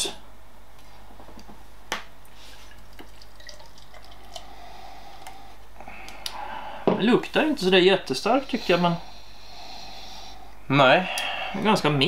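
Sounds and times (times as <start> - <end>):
beer pouring into glass: 2.5 - 5.4.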